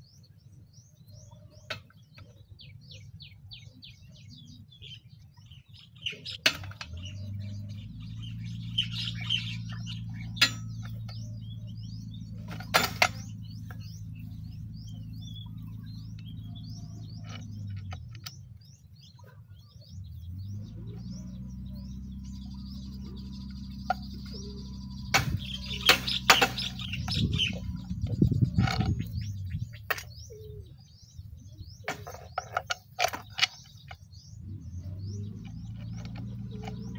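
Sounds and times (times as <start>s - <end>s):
birds chirping: 0.0s - 36.9s
actuator motor humming: 1.0s - 19.1s, 19.9s - 30.4s.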